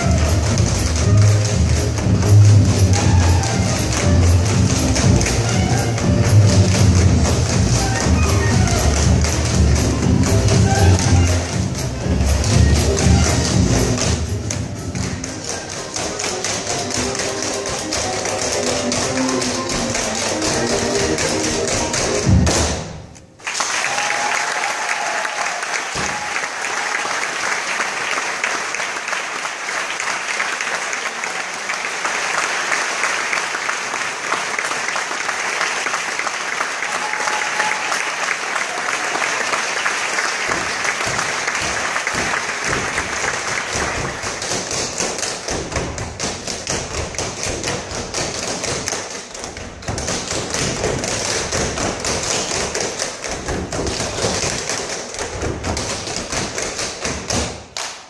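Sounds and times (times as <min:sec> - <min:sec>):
audience applause: 0:00.0 - 0:14.1, 0:23.4 - 0:45.6
tap shoes on wooden stage: 0:00.0 - 0:58.0.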